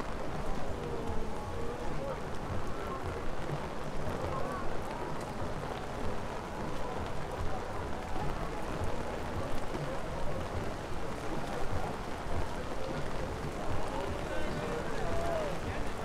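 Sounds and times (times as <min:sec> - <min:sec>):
faint voices of passers-by: 0:00.0 - 0:16.0
rain on wet pavement: 0:00.0 - 0:16.0.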